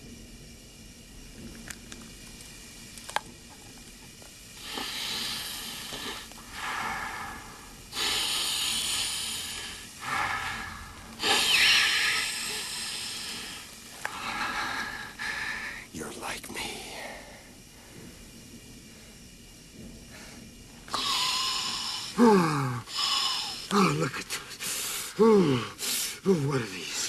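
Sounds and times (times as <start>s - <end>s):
man breathing hard through mask: 4.6s - 15.9s, 20.0s - 26.4s.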